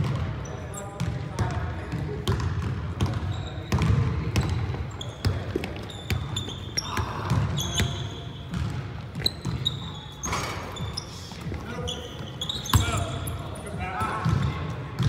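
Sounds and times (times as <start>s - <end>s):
sneaker squeaks: 0.0s - 15.0s
basketball bouncing on hardwood floor: 1.0s - 6.2s, 8.5s - 9.6s.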